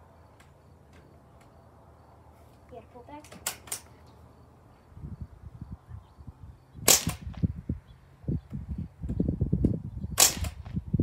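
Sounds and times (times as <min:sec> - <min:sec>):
rifle shot crack: 0:06.9 - 0:07.4, 0:10.2 - 0:10.7.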